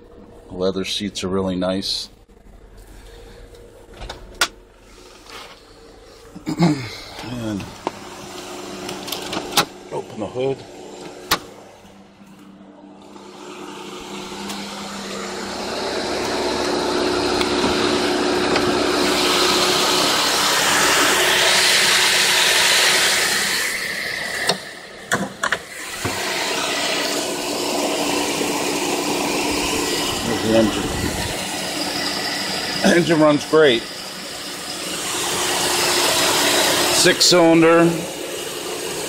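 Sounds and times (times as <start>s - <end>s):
car engine idling: 0.0s - 23.2s.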